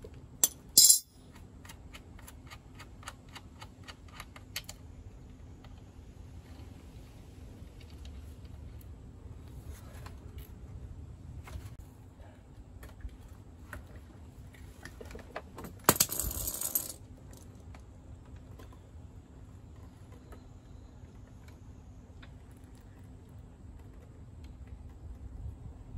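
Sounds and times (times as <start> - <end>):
metallic jangling clatter: 0.4 - 1.2.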